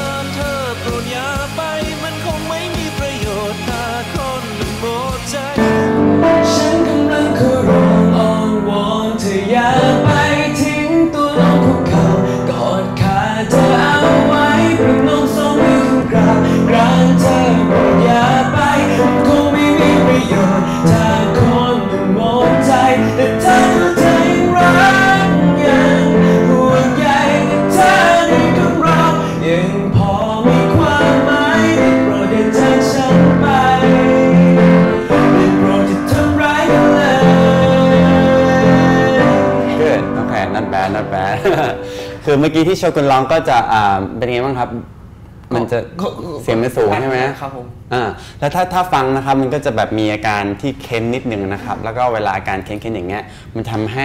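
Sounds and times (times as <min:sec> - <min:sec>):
man singing: 0:00.0 - 0:42.4
piano accompaniment: 0:00.0 - 0:43.5.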